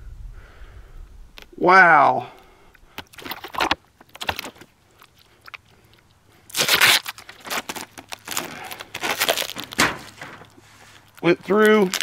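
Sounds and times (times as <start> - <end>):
duct tape ripping: 6.5 - 12.0
paper plates rustling: 6.6 - 12.0.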